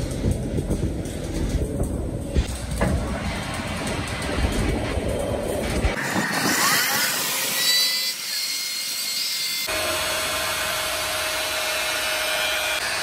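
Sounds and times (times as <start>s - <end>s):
lathe humming and rumbling: 0.0s - 6.6s
angle grinder grinding steel: 5.8s - 13.0s.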